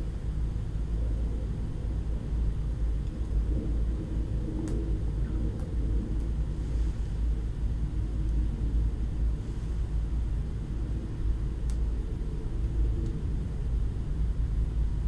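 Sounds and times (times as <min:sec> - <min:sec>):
low background rumble: 0:00.0 - 0:15.0
faint click: 0:11.6 - 0:11.8.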